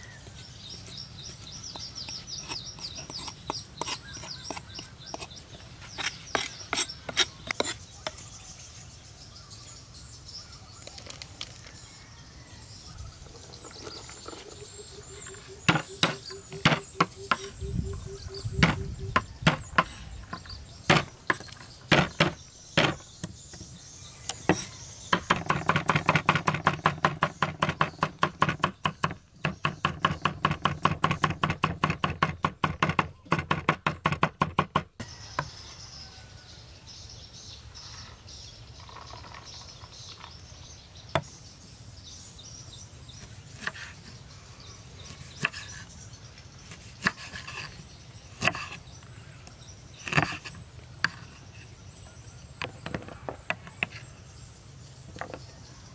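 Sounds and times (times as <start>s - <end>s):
cleaver chopping on wooden board: 1.7s - 5.3s, 15.6s - 17.5s, 18.6s - 23.7s, 24.4s - 35.5s, 48.4s - 48.8s.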